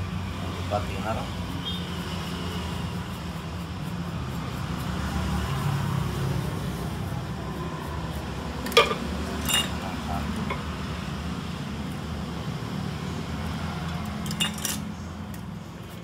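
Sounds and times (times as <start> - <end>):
small hard objects clinking: 8.6 - 9.8, 14.2 - 14.8.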